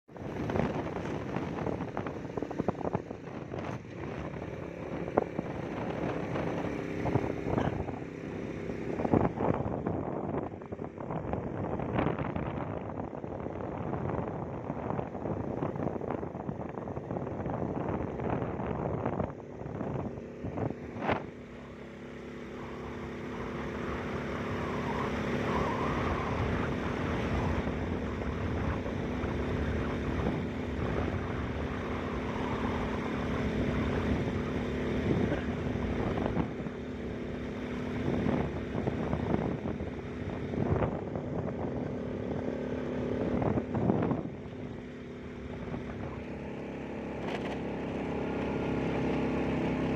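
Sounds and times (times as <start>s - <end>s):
motorcycle engine cruising: 0.0s - 49.9s
road and wind noise: 0.0s - 49.9s.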